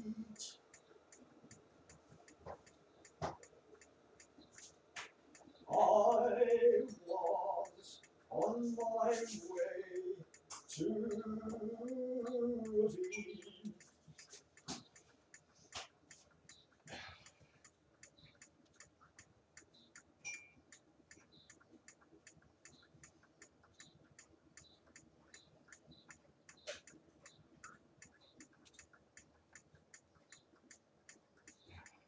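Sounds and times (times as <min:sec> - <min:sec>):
clock ticking: 0:00.0 - 0:32.0.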